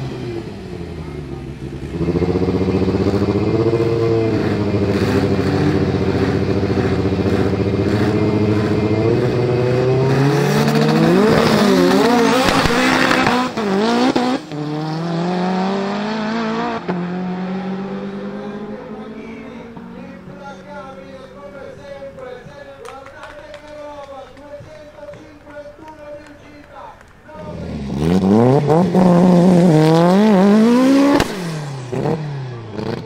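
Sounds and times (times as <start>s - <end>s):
drag car engines revving: 0.0s - 33.0s.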